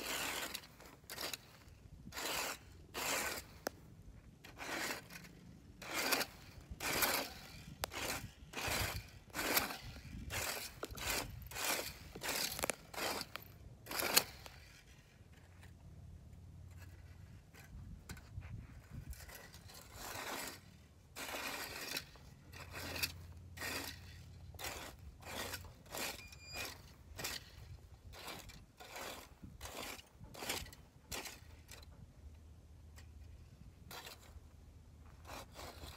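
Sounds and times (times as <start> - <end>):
rake scraping dry grass: 0.0 - 32.0, 32.8 - 35.9.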